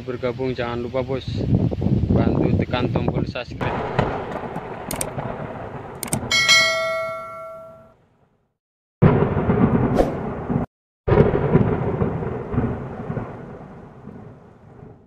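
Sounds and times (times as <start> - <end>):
rumbling thunder: 3.6 - 7.3, 9.0 - 15.0
rain: 3.7 - 6.3, 9.1 - 15.0
bell chime: 6.3 - 7.9.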